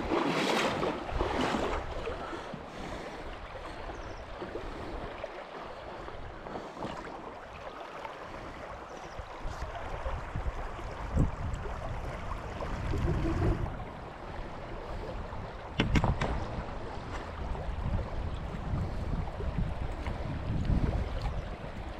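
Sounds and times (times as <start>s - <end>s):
wind buffeting: 9.5s - 21.9s
sharp knocks: 15.8s - 16.4s.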